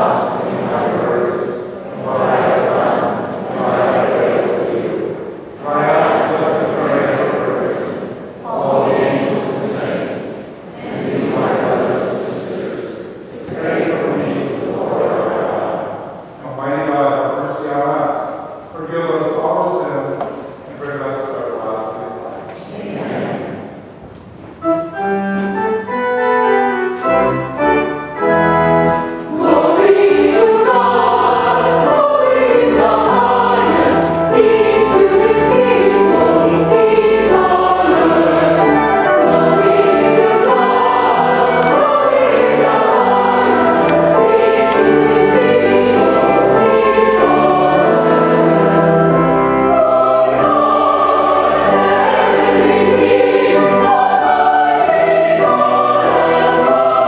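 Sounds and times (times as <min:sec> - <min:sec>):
choir and congregation singing hymn: 0:00.0 - 0:24.0, 0:24.6 - 0:57.0
instrumental accompaniment: 0:22.8 - 0:57.0.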